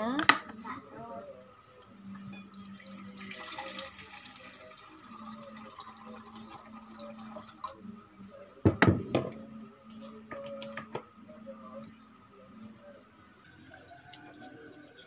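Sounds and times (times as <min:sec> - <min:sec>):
water pouring into saucepan: 0:02.4 - 0:07.8.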